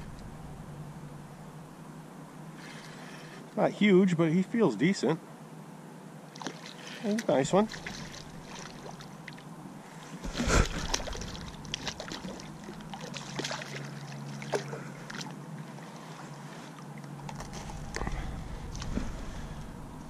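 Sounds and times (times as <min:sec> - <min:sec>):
fish splashing at water surface: 0:06.3 - 0:09.4, 0:10.2 - 0:15.4.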